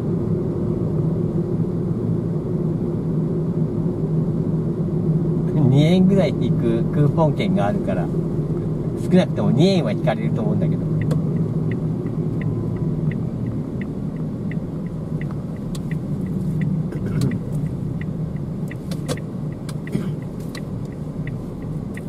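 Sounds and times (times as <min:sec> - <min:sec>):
engine and tyre rumble: 0:00.0 - 0:22.0
turn signal ticking: 0:07.0 - 0:22.0
sharp clicks: 0:15.2 - 0:22.0.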